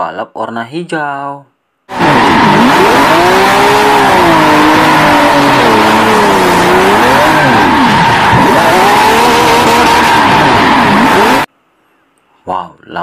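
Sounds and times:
car engine revving: 1.9s - 11.5s
tyres squealing and skidding: 1.9s - 11.5s.

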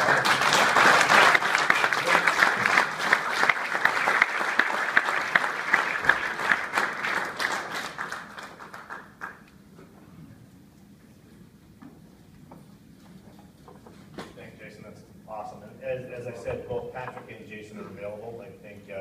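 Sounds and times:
audience applause: 0.0s - 9.5s.

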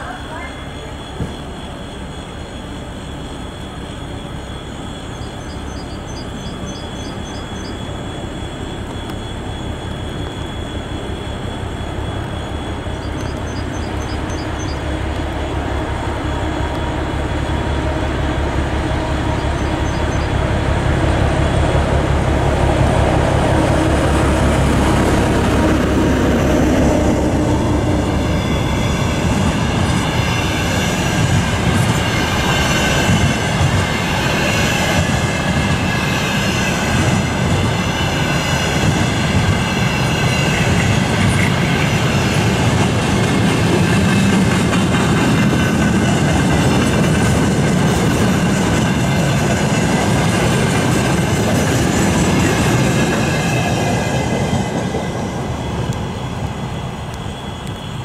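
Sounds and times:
wheels squealing: 0.0s - 21.7s
diesel locomotive engine running: 0.0s - 58.0s.

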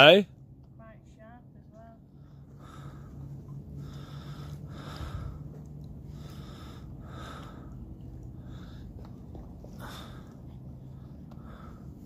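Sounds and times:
steady low hum: 0.0s - 12.0s
person breathing close to microphone: 2.2s - 9.1s.

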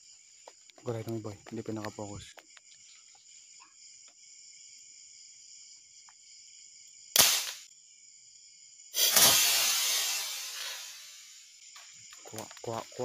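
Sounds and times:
night insects chirping: 0.0s - 13.0s
marble gun shot: 7.2s - 7.7s, 9.0s - 11.4s.

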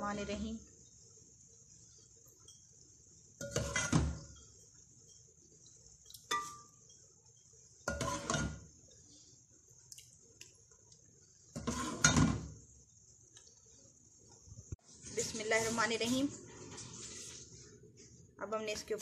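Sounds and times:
metal spoon clinking on pot: 6.2s - 7.0s.

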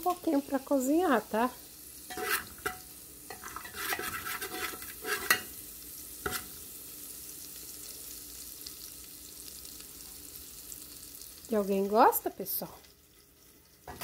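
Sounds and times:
garlic sizzling in oil: 0.0s - 14.0s
metal spoon scraping pot: 2.1s - 5.5s.

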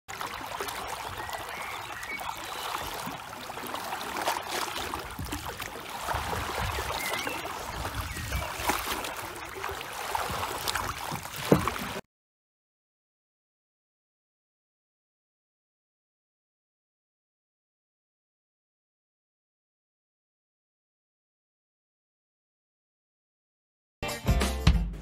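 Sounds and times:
paddle splashing in water: 0.1s - 12.0s.

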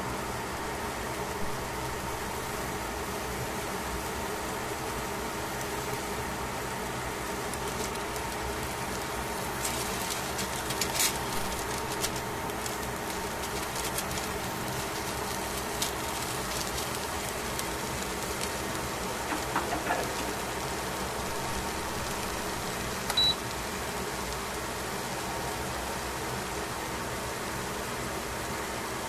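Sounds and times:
steady hum and hiss: 0.0s - 29.0s
tongs clicking against foil in pan: 7.5s - 20.8s.

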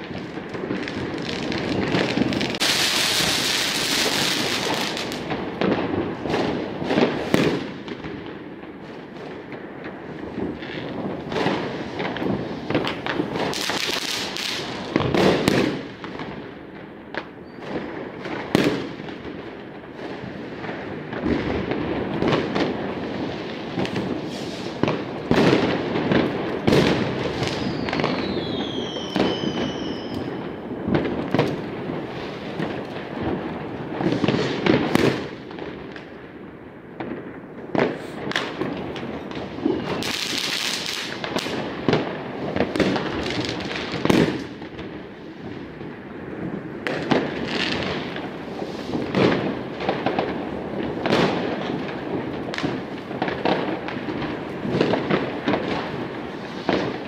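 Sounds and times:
fireworks bangs and crackles: 0.0s - 57.0s
falling firework whistles: 0.7s - 5.2s, 17.4s - 17.9s, 23.8s - 25.7s, 26.8s - 31.4s, 39.3s - 41.6s
firework hissing burst: 2.0s - 5.2s, 23.9s - 24.8s.

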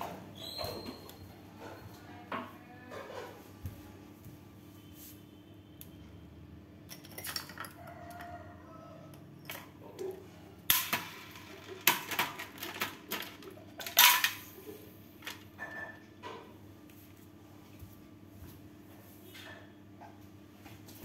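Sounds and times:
glass shards clinking and scraping: 13.8s - 14.4s.

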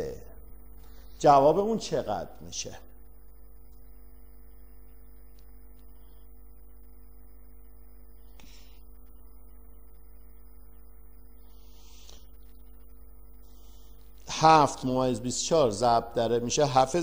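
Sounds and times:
electrical hum and buzz: 0.0s - 17.0s
soft hiss: 5.2s - 10.2s.

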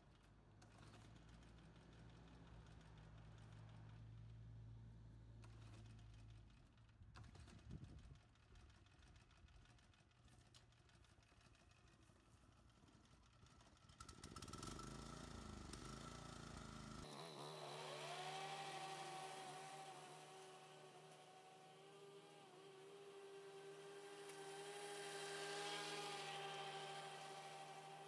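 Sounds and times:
lawn mower engine running: 13.4s - 28.0s.

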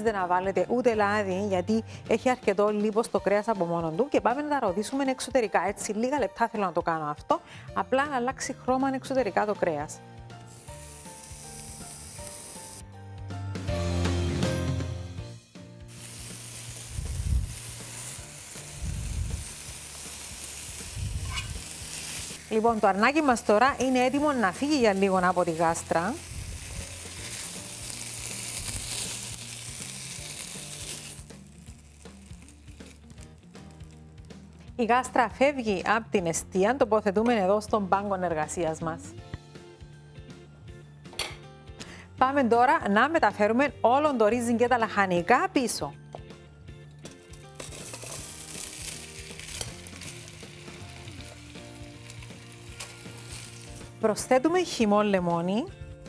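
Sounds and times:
soft background music: 0.0s - 56.0s
meat sizzling in a pot: 9.0s - 13.0s, 13.6s - 35.7s, 47.1s - 55.2s.

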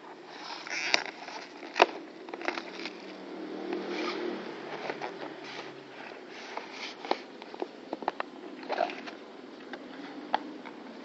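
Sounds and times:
foil and plastic rustling: 0.2s - 3.1s.

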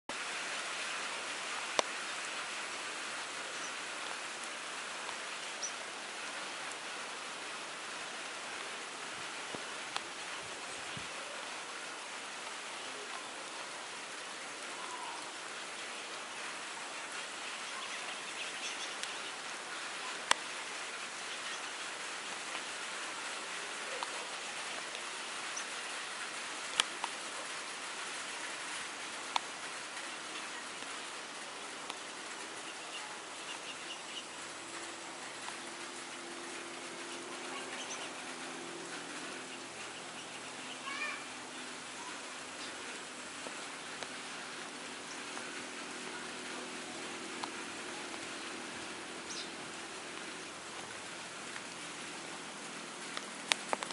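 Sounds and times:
steady rain falling: 0.1s - 53.9s
raindrop taps: 20.2s - 20.5s, 26.6s - 27.2s, 29.1s - 31.0s, 31.8s - 32.6s, 34.6s - 39.5s, 43.4s - 44.3s, 45.1s - 51.8s, 53.0s - 53.9s.

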